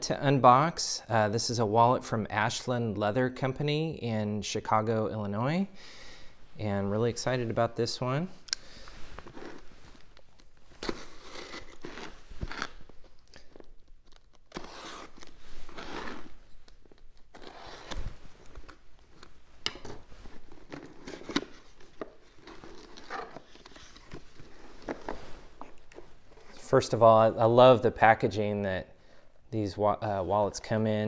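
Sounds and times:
packing tape tearing: 9.2s - 26.0s.

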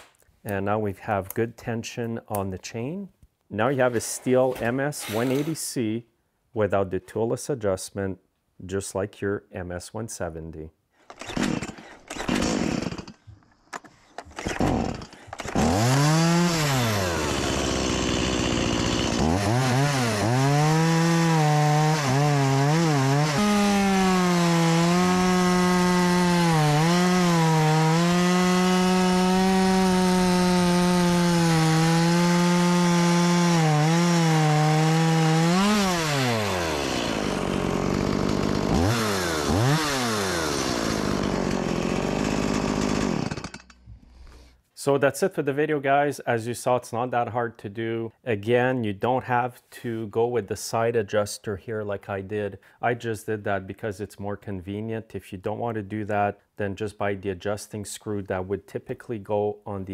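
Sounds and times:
chainsaw revving and cutting log: 11.1s - 13.2s, 14.4s - 44.5s.

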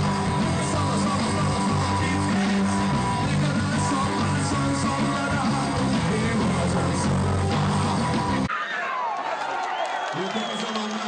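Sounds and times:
man singing: 0.0s - 8.0s
bass guitar: 0.0s - 8.5s
drums: 0.0s - 8.5s
electric guitar: 0.0s - 8.5s.

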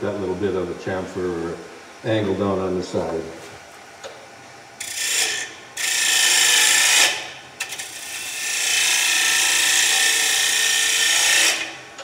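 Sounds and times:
lathe tool scraping wood: 7.9s - 11.8s.

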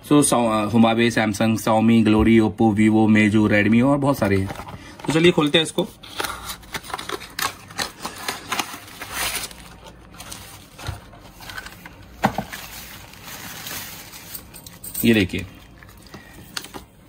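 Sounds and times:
plastic bag crinkling: 6.5s - 16.3s.

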